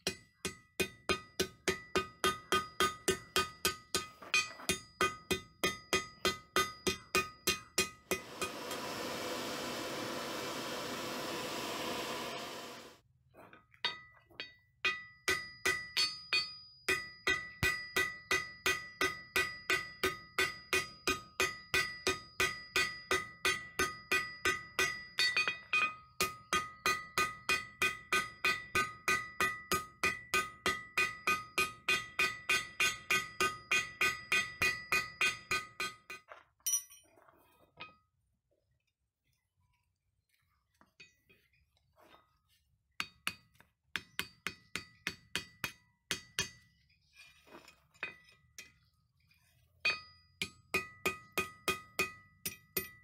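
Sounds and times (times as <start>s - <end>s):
hammer striking steel on anvil: 0.0s - 9.0s, 13.9s - 37.0s, 43.0s - 46.7s, 49.9s - 53.0s.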